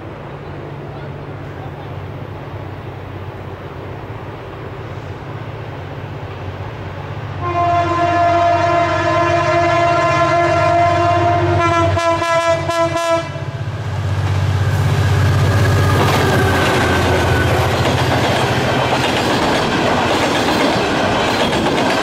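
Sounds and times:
train rumble: 0:00.0 - 0:22.0
locomotive horn blast: 0:07.4 - 0:13.6.

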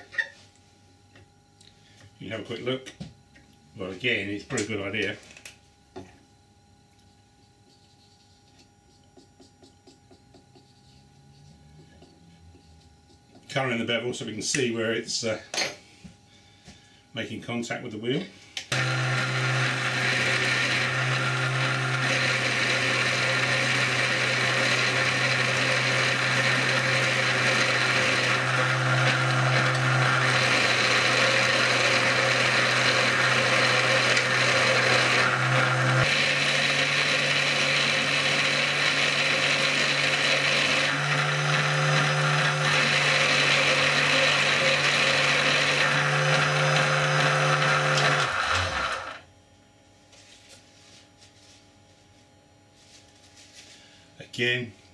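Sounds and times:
electric motor hum: 0:18.6 - 0:49.3.

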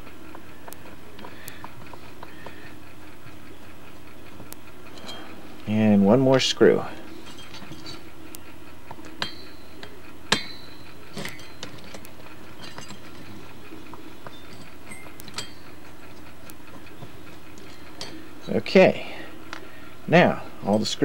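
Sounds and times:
faint steady hum: 0:00.0 - 0:21.0
screwdriver metallic clicks: 0:08.9 - 0:15.6.

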